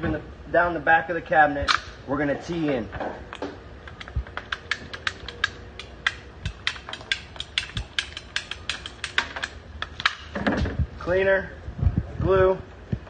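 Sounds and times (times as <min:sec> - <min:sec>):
pipe cutter ratcheting clicks: 0:03.9 - 0:10.2.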